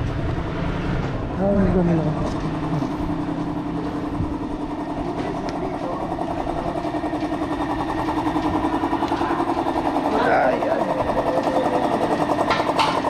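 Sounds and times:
vehicle engine idling: 0:00.0 - 0:13.0.

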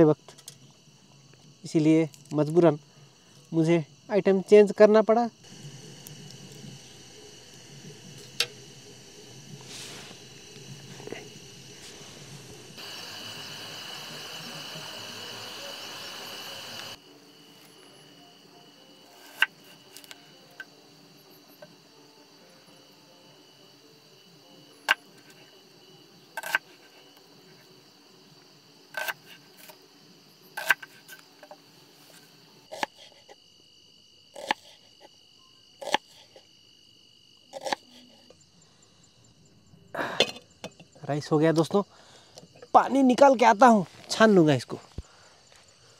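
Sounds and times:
crickets chirping: 0:00.0 - 0:45.9
gas stove burner hissing: 0:05.4 - 0:17.7.

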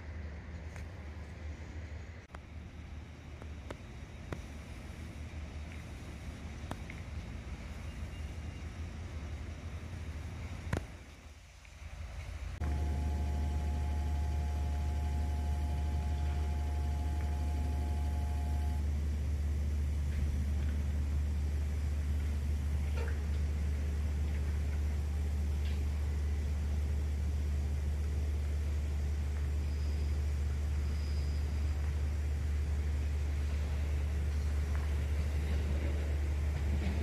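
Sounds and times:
diesel engine idling: 0:02.3 - 0:37.0
steady high tones: 0:12.6 - 0:18.9.

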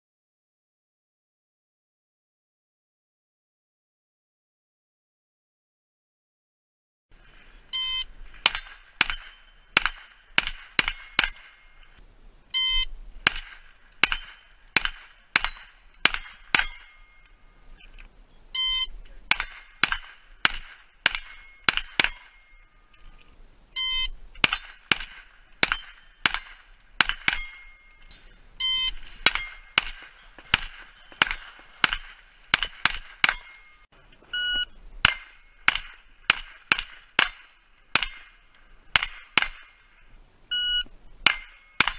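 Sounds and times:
carbine gunshots: 0:07.8 - 0:12.0, 0:13.2 - 0:17.4, 0:18.7 - 0:22.9, 0:23.8 - 0:33.9, 0:35.0 - 0:40.1, 0:41.2 - 0:41.9
steel plates ringing: 0:07.8 - 0:12.0, 0:12.6 - 0:41.9
shot timer beeping: 0:12.5 - 0:13.0, 0:15.4 - 0:20.0, 0:23.8 - 0:24.6, 0:27.0 - 0:30.0, 0:33.2 - 0:35.8, 0:40.5 - 0:41.9.

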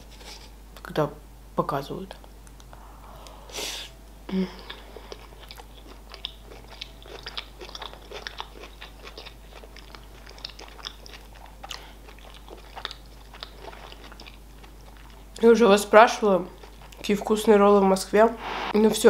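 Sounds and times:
chewing mouth clicks and smacks: 0:05.1 - 0:15.2.

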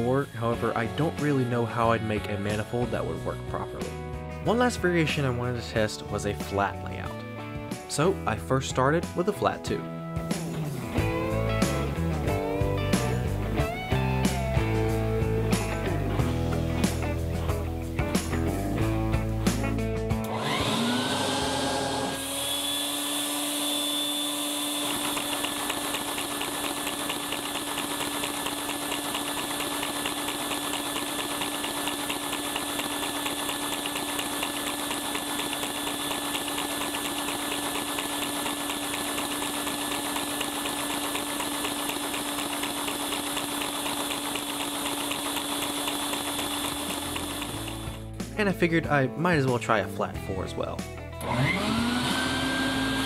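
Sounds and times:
vacuum motor whine: 0:20.2 - 0:48.1, 0:51.2 - 0:53.0
plastic engine clatter: 0:24.9 - 0:48.0.

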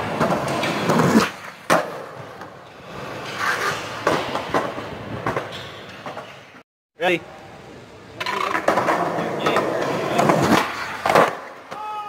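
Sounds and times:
skateboard clack: 0:00.0 - 0:02.6, 0:08.2 - 0:12.0
skateboard wheels rolling on concrete: 0:00.0 - 0:06.6, 0:08.1 - 0:12.0.

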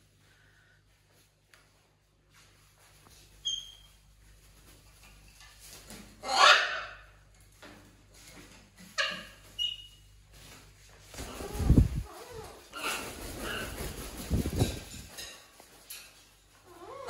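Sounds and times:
wings flapping: 0:11.0 - 0:15.8.

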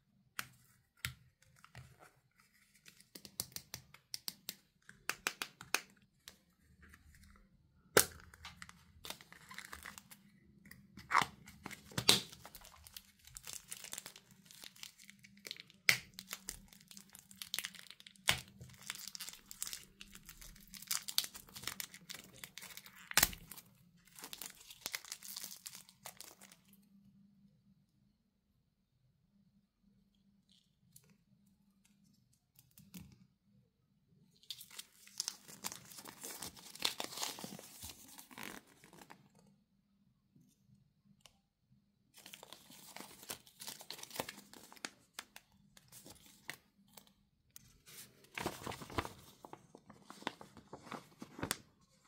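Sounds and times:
plastic wrapper crinkling and tearing: 0:08.0 - 0:26.8, 0:34.4 - 0:39.2, 0:42.2 - 0:47.2, 0:47.9 - 0:51.7.

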